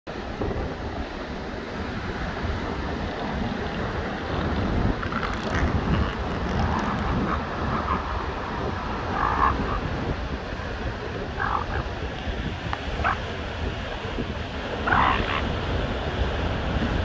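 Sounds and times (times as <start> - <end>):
steady surf: 0.1 - 17.0
wind rumbling on microphone: 0.1 - 17.0
elephant seal calls: 5.1 - 9.9, 11.2 - 11.9, 13.0 - 13.3, 14.8 - 15.5.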